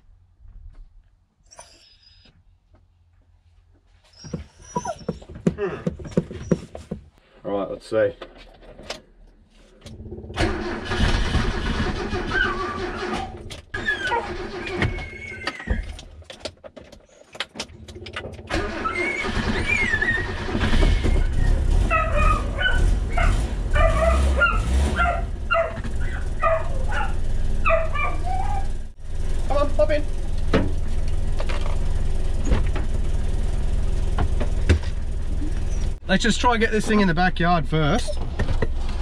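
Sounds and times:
dog whimpering and yipping: 0:04.1 - 0:05.4, 0:12.2 - 0:15.7, 0:18.6 - 0:28.8
car engine cranking on starter: 0:09.9 - 0:15.5, 0:17.4 - 0:28.2.

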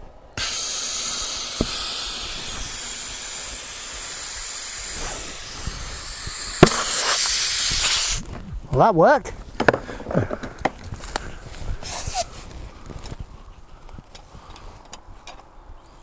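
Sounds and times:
compressed air hissing into tyre: 0:00.4 - 0:08.3, 0:11.7 - 0:12.5.

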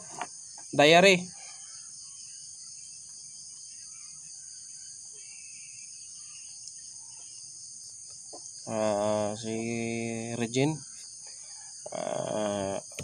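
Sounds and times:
insects droning: 0:00.0 - 0:13.0
man's voice: 0:11.9 - 0:13.0.

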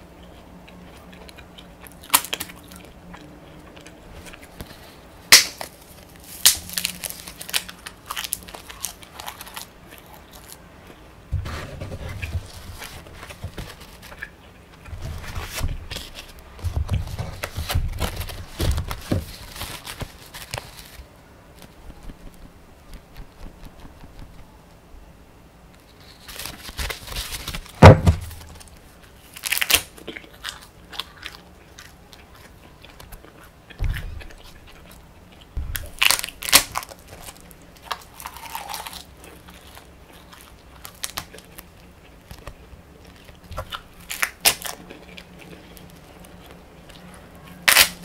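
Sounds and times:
chewing: 0:00.2 - 0:05.1, 0:28.5 - 0:48.0
crisp bites and crunching: 0:00.9 - 0:10.6, 0:12.1 - 0:21.1, 0:25.9 - 0:48.0
sheets rustling: 0:11.4 - 0:24.6, 0:25.8 - 0:29.8.

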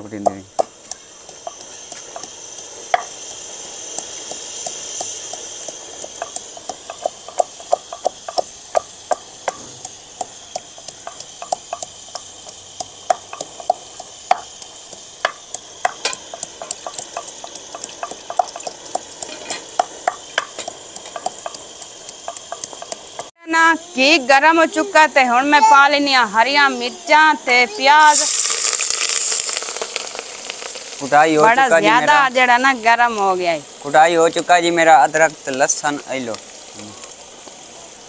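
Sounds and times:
pestle pounding in a mortar: 0:00.0 - 0:23.3
steady high hiss: 0:00.0 - 0:38.0.

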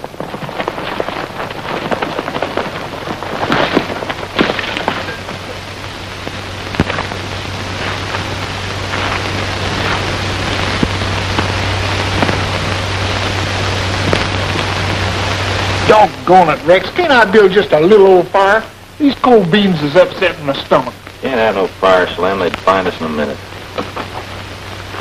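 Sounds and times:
film soundtrack hiss and crackle: 0:00.0 - 0:25.0
low hum: 0:00.0 - 0:25.0
clicks or thumps: 0:23.7 - 0:24.4.

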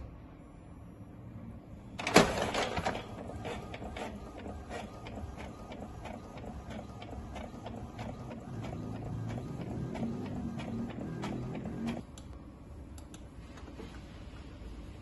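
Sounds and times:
printer clicking and ticking: 0:02.0 - 0:12.0
printer clunk: 0:02.0 - 0:12.0.

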